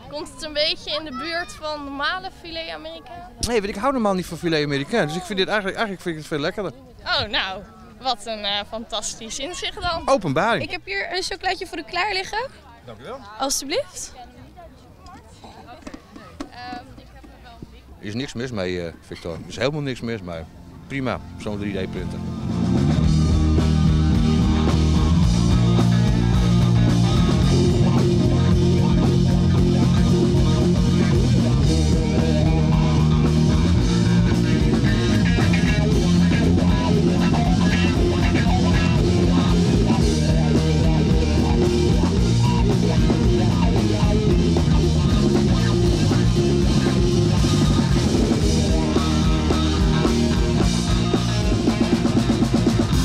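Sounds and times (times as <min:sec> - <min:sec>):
bass guitar: 0:20.6 - 0:53.0
drum kit: 0:22.1 - 0:53.0
electric guitar: 0:22.2 - 0:53.0.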